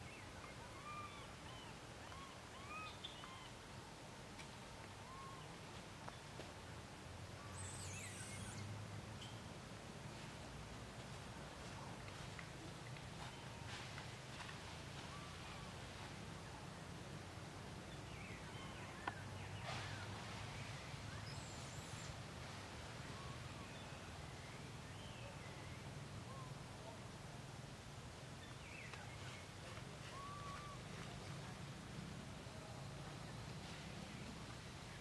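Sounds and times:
bird chirps and whistles: 7.5 - 8.7.

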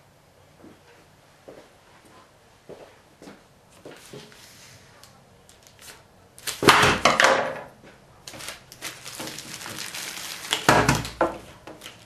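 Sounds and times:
plastic bag crinkling: 8.2 - 12.0.

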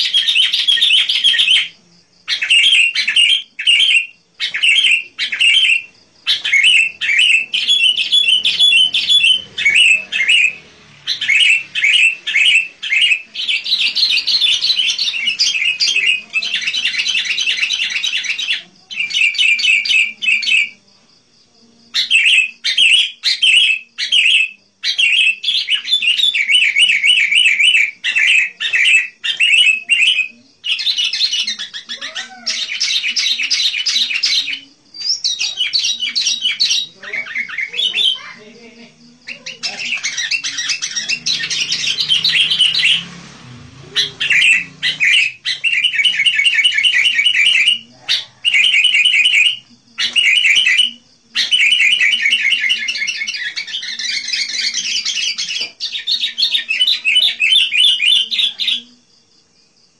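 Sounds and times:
bird singing bright chirps: 0.0 - 20.8, 21.9 - 58.9.

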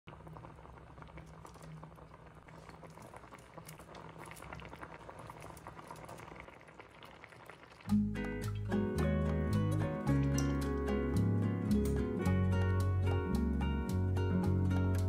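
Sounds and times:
broth bubbling in pot: 0.1 - 13.6.

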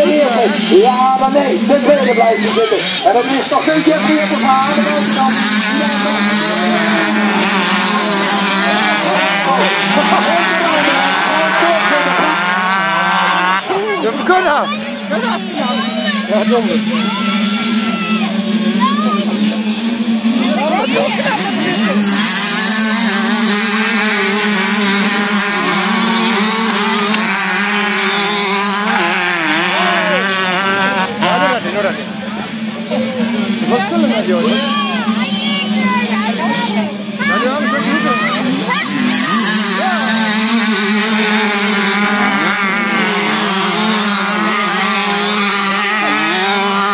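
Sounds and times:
motorcycles racing past: 0.0 - 46.9.

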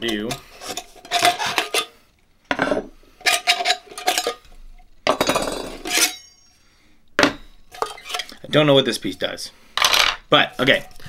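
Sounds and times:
metal stove parts clattering: 2.6 - 4.4, 5.1 - 6.4.

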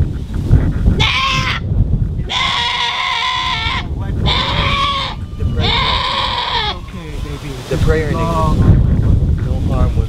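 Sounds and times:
young goat bleating: 1.0 - 1.7, 2.3 - 6.9.

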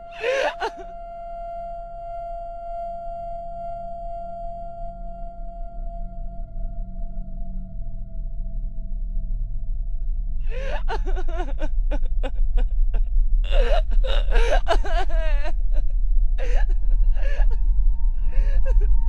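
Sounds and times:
person groaning and wailing: 0.0 - 0.8, 10.5 - 12.6, 13.4 - 17.6, 18.3 - 18.9
low steady drone: 0.0 - 19.0.

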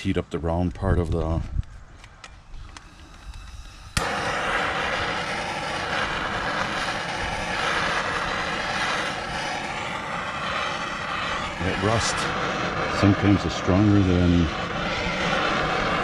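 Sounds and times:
gas torch igniting: 2.0 - 16.0
gas torch hissing: 2.4 - 16.0.

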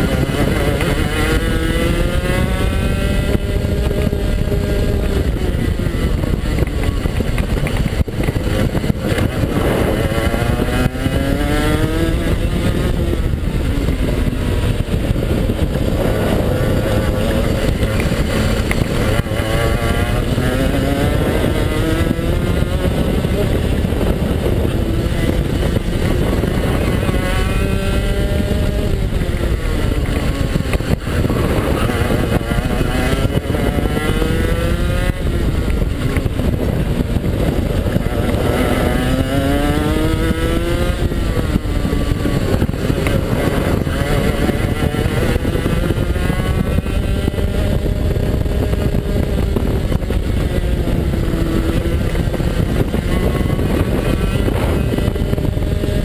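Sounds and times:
kart engine revving: 0.0 - 56.0.

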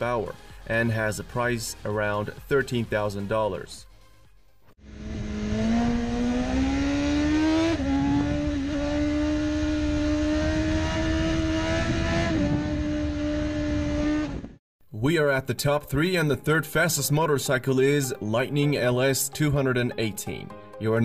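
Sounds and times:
motorcycle engine revving high: 4.8 - 14.6
wind rush: 7.8 - 14.6.

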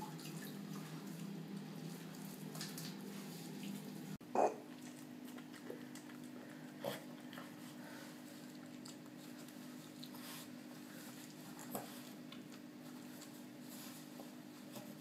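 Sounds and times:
towel rubbing wet dog: 7.4 - 15.0.

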